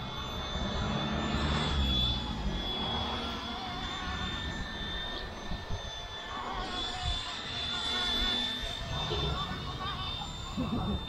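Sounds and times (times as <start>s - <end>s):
model helicopter whining: 0.0s - 11.0s
wind rumbling on microphone: 2.1s - 7.4s.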